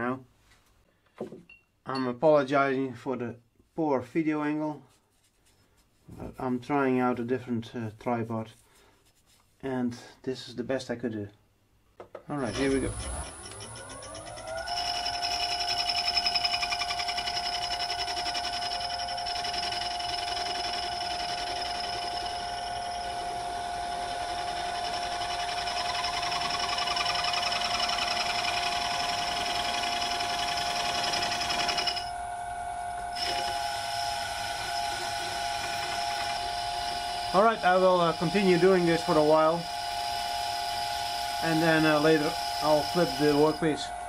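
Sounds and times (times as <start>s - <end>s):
metal lathe cutting whine: 12.4s - 16.2s, 33.2s - 44.0s.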